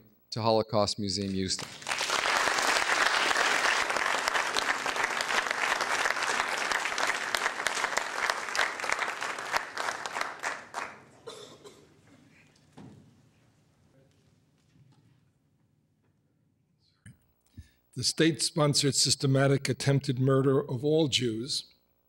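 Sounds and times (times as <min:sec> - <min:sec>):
audience applauding: 0:01.6 - 0:11.2.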